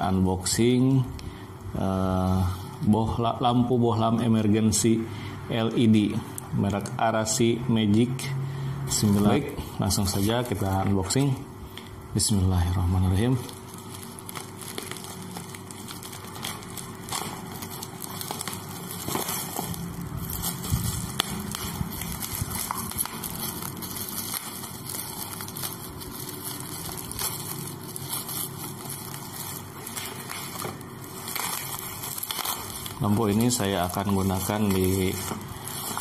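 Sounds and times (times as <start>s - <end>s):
plastic crinkling: 8.9s - 36.0s
scissors cutting plastic wrap: 12.9s - 36.0s
small clicks and crackles: 13.2s - 36.0s.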